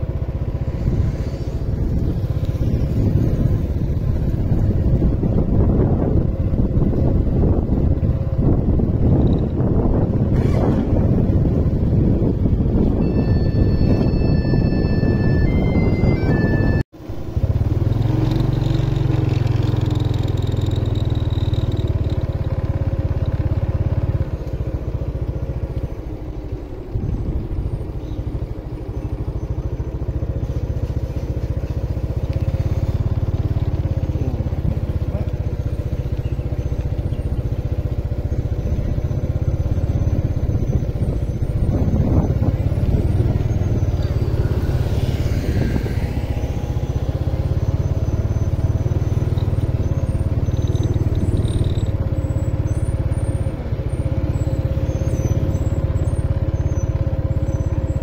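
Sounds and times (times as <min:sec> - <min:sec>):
motorbike engine running: 0:00.0 - 0:58.0
wind rumble on microphone: 0:00.0 - 0:58.0.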